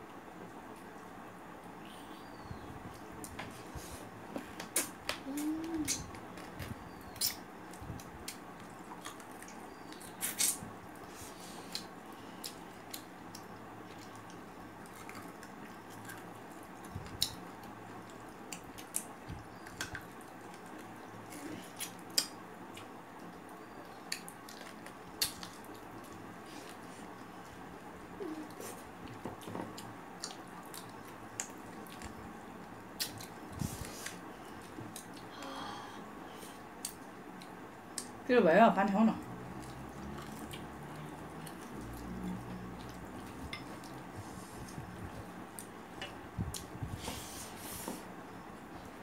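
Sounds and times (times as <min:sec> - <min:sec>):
squishy chewing and mouth sounds: 0:04.5 - 0:35.3, 0:39.2 - 0:47.0.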